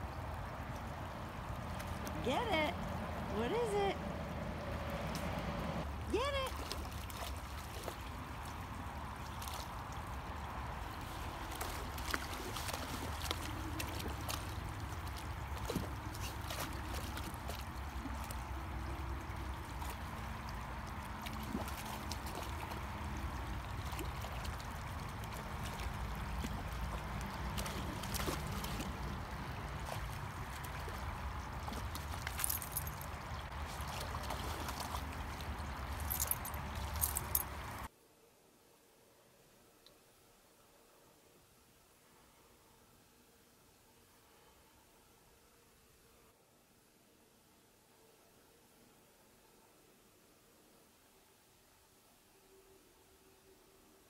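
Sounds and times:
creek water running: 0.0s - 37.9s
dog wading in water: 5.9s - 37.8s.

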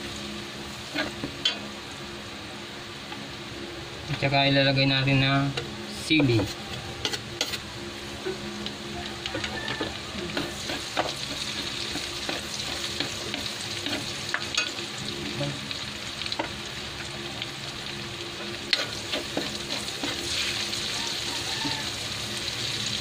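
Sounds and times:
garlic sizzling in a wok: 0.0s - 23.0s
metal spatula scraping a pan: 9.4s - 14.7s.

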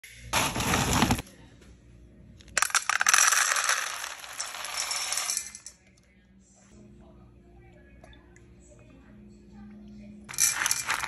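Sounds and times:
kibble rattling into metal bowl: 10.3s - 11.0s.

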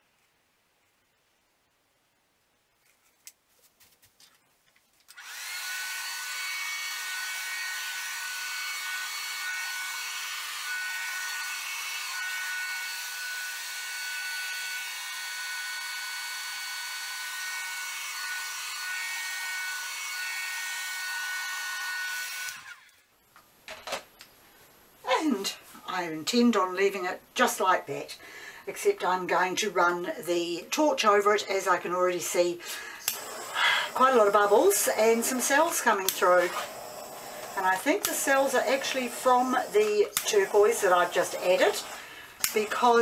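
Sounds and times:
hair dryer blowing: 5.1s - 22.8s, 32.7s - 43.0s.

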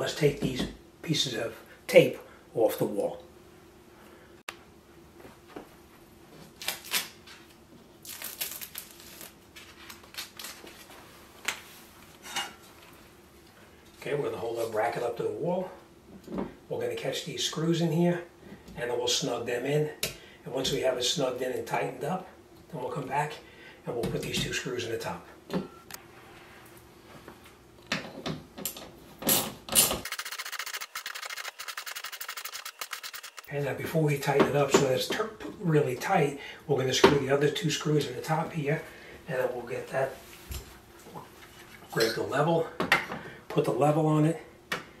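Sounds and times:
tape ripping off a wall: 6.5s - 7.4s, 8.0s - 10.9s
tape crinkling: 6.5s - 11.6s.

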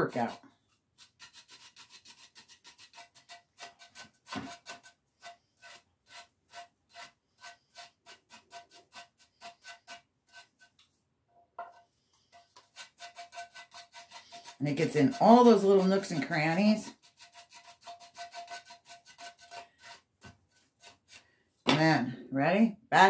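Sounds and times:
brush rubbing over waxed surface: 0.0s - 10.8s, 12.3s - 21.2s.

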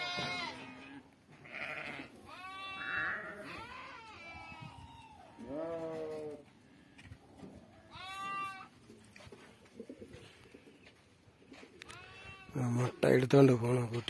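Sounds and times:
goats bleating: 0.0s - 6.4s, 7.8s - 8.8s, 11.8s - 12.9s.

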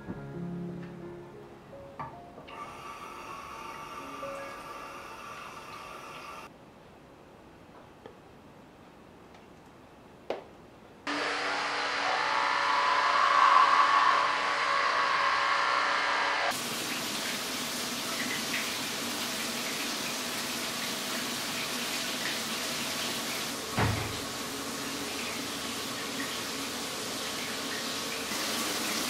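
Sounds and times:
shower water hissing: 2.6s - 6.5s, 15.2s - 29.0s
tap water running into sink: 16.5s - 29.0s
dull thump: 23.8s - 24.2s.

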